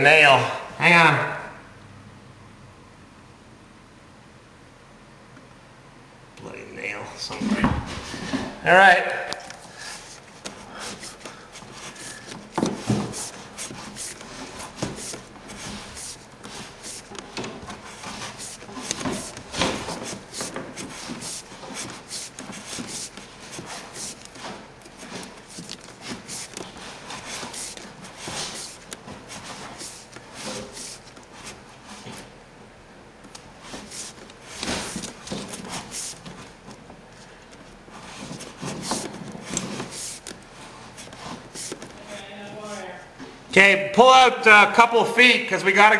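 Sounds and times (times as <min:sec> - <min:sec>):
cable rubbing and scraping: 0:09.4 - 0:32.4, 0:33.3 - 0:36.8, 0:37.9 - 0:43.0.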